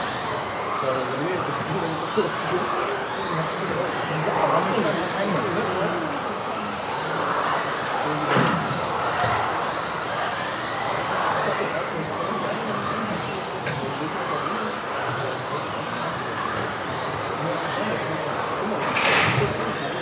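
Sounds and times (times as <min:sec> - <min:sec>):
rc car motors whining: 0:00.0 - 0:20.0.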